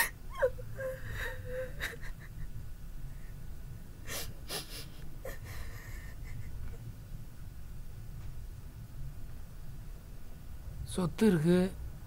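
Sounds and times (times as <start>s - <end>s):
woman crying: 0.0s - 2.6s, 4.1s - 6.8s
low steady hum: 0.0s - 12.0s.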